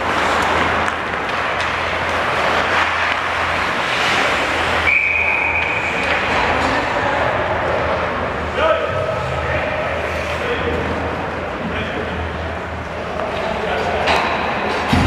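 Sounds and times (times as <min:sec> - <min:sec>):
ice skating play: 0:00.0 - 0:15.0
referee's whistle blast: 0:04.9 - 0:05.7.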